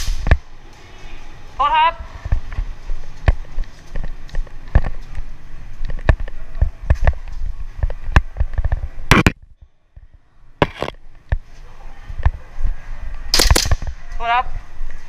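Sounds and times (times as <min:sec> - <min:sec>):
hurried footsteps: 0:10.6 - 0:10.9
airsoft pistol shots: 0:13.4 - 0:13.8.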